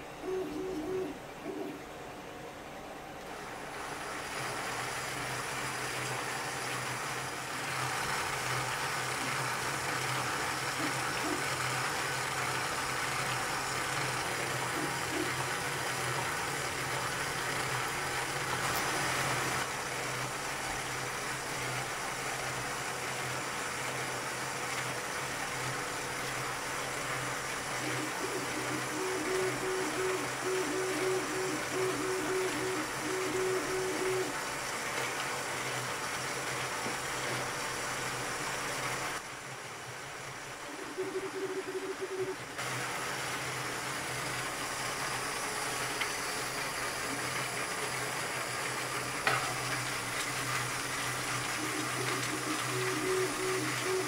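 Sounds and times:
motor-driven model engine whirring: 0:41.1 - 0:54.0.

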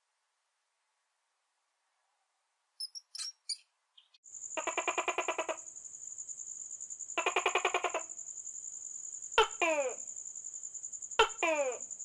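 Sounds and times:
hamster squeaks: 0:02.8 - 0:03.6
high chirping trill: 0:02.8 - 0:03.6.

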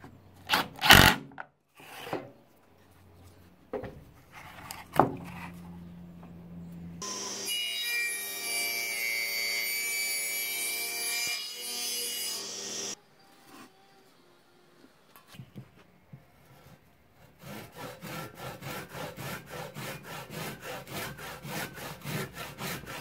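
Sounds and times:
table saw cutting log: 0:07.0 - 0:13.0, 0:17.4 - 0:23.0
saw blade humming: 0:07.0 - 0:13.9.

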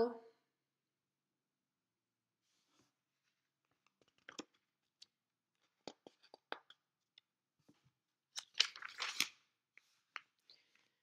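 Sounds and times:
page turning rustle: 0:08.4 - 0:10.0.

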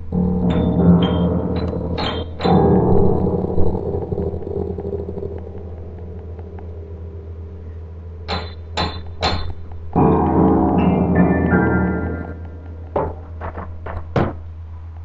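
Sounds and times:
piano chord ringing: 0:00.0 - 0:13.8
steady low hum: 0:00.0 - 0:15.0
sharp knocks: 0:00.2 - 0:06.7, 0:08.3 - 0:11.0, 0:12.6 - 0:14.5.

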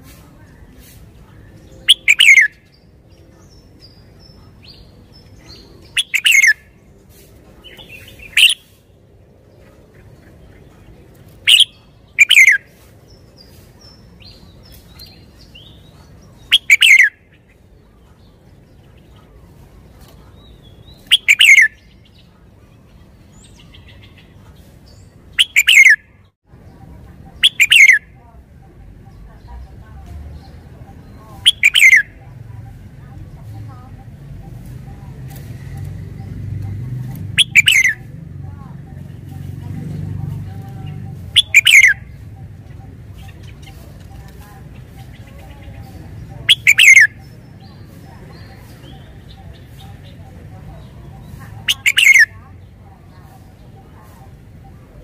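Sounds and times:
faint bird chirps: 0:01.2 - 0:06.8, 0:09.6 - 0:38.1, 0:40.5 - 0:55.0
bulbul singing falling whistles: 0:01.7 - 0:02.9, 0:11.5 - 0:13.6, 0:16.5 - 0:17.3, 0:20.6 - 0:22.2, 0:27.4 - 0:28.1, 0:31.4 - 0:32.2, 0:37.4 - 0:38.1, 0:41.3 - 0:42.5, 0:46.5 - 0:48.0, 0:51.7 - 0:52.4.

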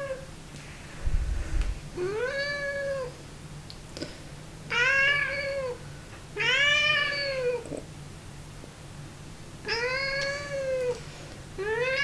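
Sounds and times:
cat meowing: 0:04.7 - 0:05.8, 0:06.4 - 0:07.6, 0:09.7 - 0:11.0, 0:11.6 - 0:12.0.

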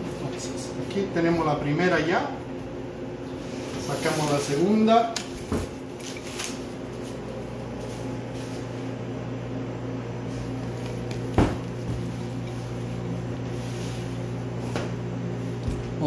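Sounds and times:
low hum of kitchen equipment: 0:00.0 - 0:16.0
plastic wrap rustling: 0:05.8 - 0:08.6.

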